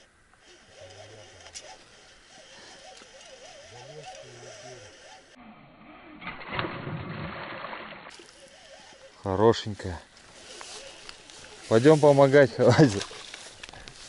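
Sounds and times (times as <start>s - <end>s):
faint wavering calls: 0.4s - 6.2s, 8.1s - 9.4s
fish splashing and thrashing: 6.2s - 9.1s.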